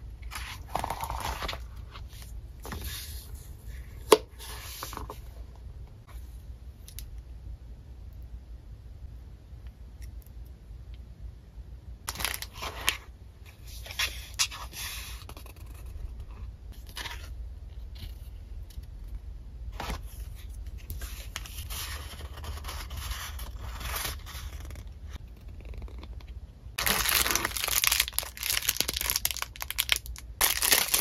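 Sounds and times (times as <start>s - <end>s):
paper and plastic rustling: 26.8s - 31.0s.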